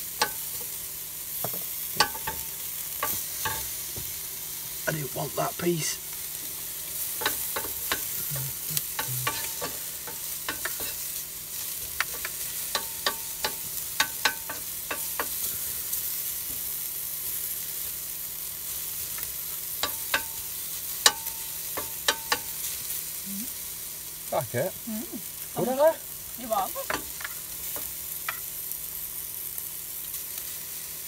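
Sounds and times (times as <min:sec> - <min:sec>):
bacon and onion sizzling: 0:00.0 - 0:31.0
spatula tapping and scraping pan: 0:01.4 - 0:04.2, 0:07.0 - 0:08.2, 0:08.8 - 0:15.5, 0:19.1 - 0:22.6, 0:26.8 - 0:28.5
metal pan ringing: 0:21.1 - 0:22.5.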